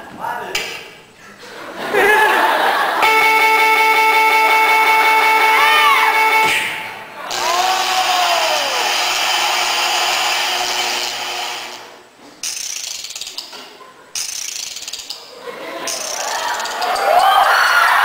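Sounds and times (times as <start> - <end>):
rapid ratchet-like clicking: 12.4 - 13.5, 14.2 - 15.3.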